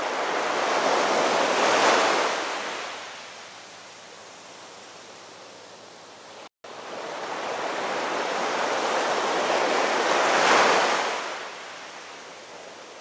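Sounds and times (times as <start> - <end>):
surf crashing on rocks: 7.1 - 11.5.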